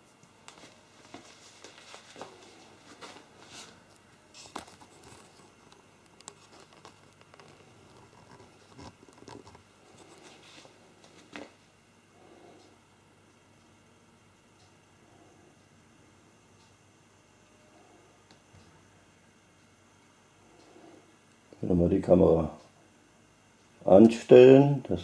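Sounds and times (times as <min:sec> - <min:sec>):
faint handling clicks and rustling: 0:00.2 - 0:11.6.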